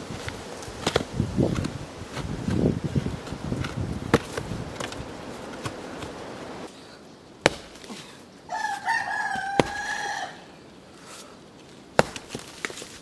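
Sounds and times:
sledgehammer striking rock: 7.4 - 7.9, 12.0 - 12.7
rooster crowing: 8.5 - 10.5.

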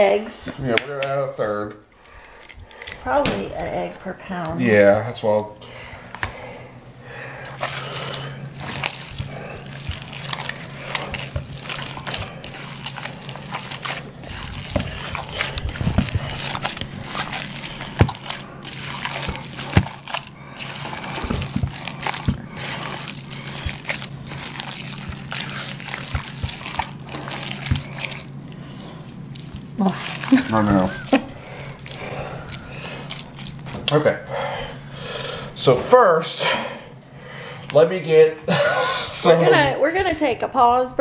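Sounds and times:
hands squishing raw meat: 7.4 - 34.0.

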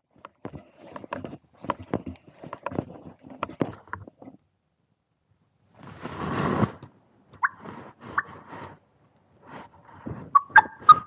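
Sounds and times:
clothing and fabric rustling: 0.0 - 4.4, 5.7 - 6.9.

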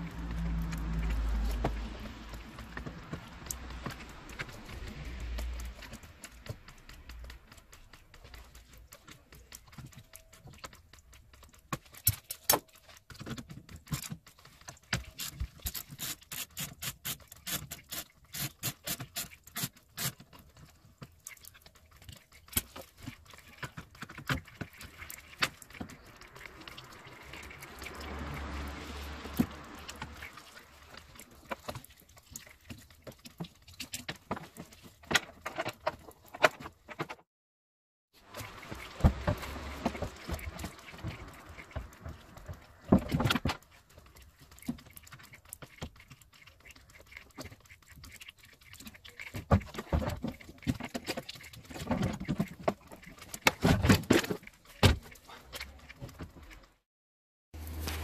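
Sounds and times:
rustling: 57.6 - 58.0.

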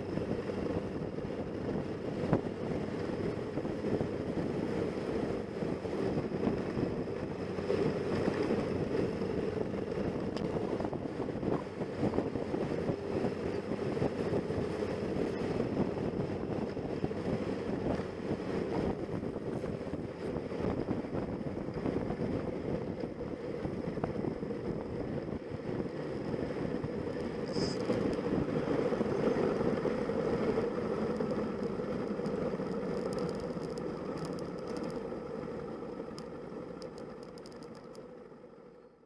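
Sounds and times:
wind buffeting microphone: 0.0 - 35.0
motorcycle engine running: 0.0 - 38.0.

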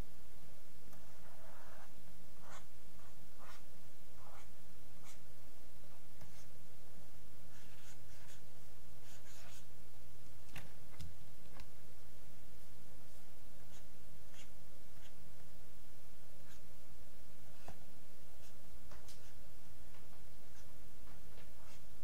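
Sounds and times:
low electrical hum: 0.0 - 22.0
mouse scratching on desk: 7.6 - 8.4.

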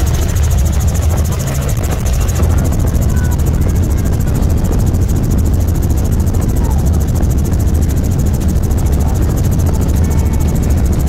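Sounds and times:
helicopter engine and rotor drone: 0.0 - 11.0.

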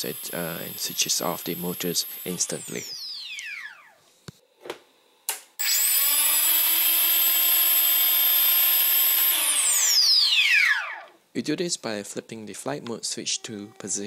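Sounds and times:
quadcopter motors whining: 0.0 - 4.1, 5.6 - 11.2.

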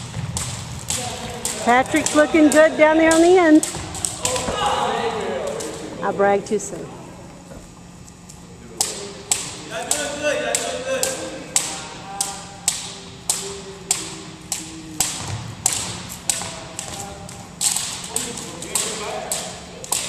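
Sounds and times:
jump ropes slapping hardwood floor: 0.0 - 4.7, 8.8 - 20.0.

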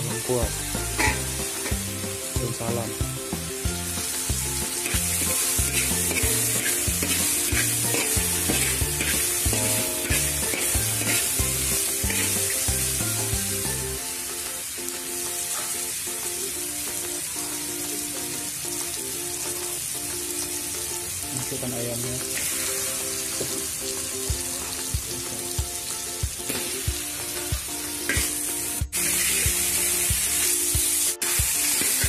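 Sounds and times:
background music: 0.0 - 32.0
spice paste sizzling in oil: 0.0 - 32.0
metal spatula stirring in wok: 1.0 - 1.9, 4.1 - 13.3, 28.0 - 32.0.

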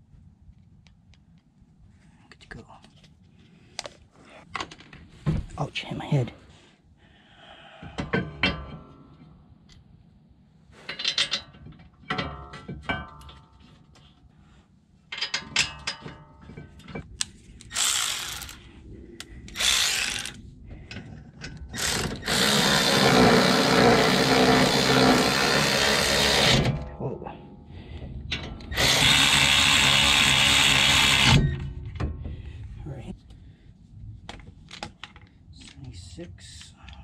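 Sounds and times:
power tool running: 17.7 - 18.6, 19.6 - 20.4, 21.8 - 26.7, 28.7 - 31.6.

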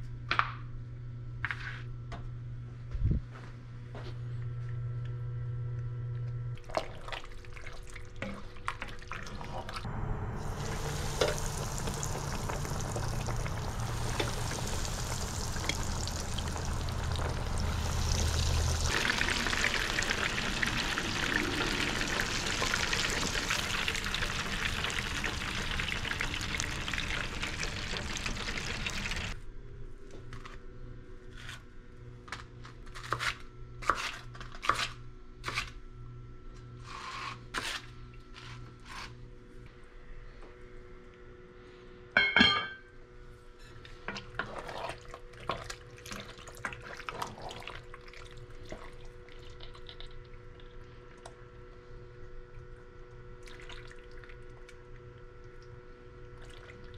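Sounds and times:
water pouring: 6.6 - 29.4, 44.4 - 51.0, 53.4 - 55.6, 56.2 - 56.9
kitchen utensils clinking: 42.2 - 42.8.

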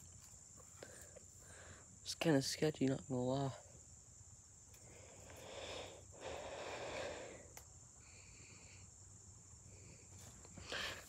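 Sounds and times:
heavy breathing: 0.7 - 2.0, 4.8 - 9.0, 9.6 - 11.0.

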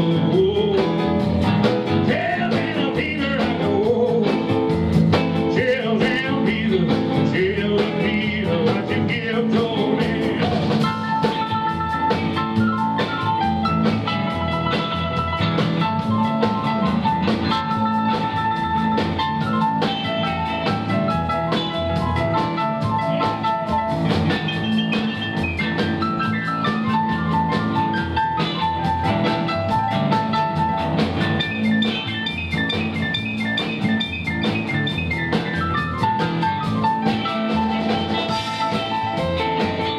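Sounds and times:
double bass: 0.0 - 39.9
drums: 0.0 - 39.9
electric guitar: 0.0 - 39.9.

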